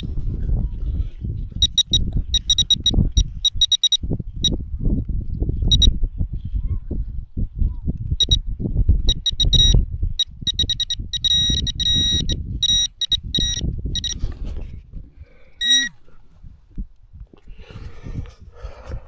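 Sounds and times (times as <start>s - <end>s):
metal detector beeping: 1.6s - 4.0s, 5.7s - 5.9s, 8.2s - 8.4s, 9.1s - 14.2s, 15.6s - 16.0s.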